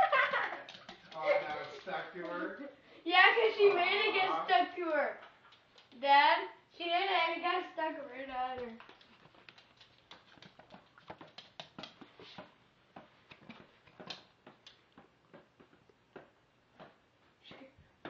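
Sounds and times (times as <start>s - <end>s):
faint taps and clicks: 8.4s - 17.7s.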